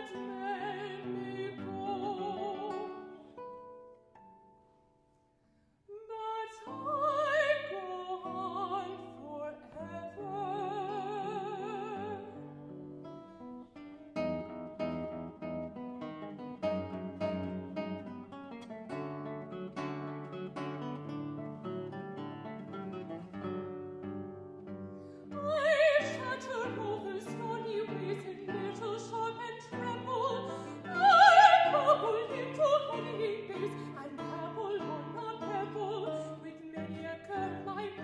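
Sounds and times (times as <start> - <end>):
soprano singing with vibrato: 0.0 - 3.4, 5.9 - 12.5, 25.3 - 38.0
fingerpicked classical guitar: 0.0 - 38.0.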